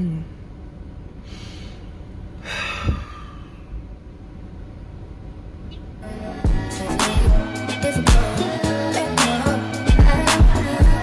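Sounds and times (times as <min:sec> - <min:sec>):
woman breathing: 0:01.2 - 0:03.9.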